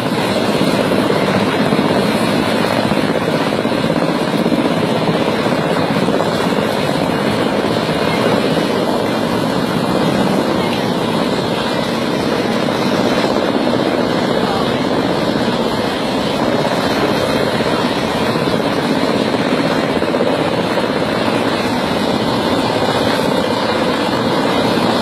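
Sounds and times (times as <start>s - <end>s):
helicopter hovering overhead: 0.0s - 25.0s.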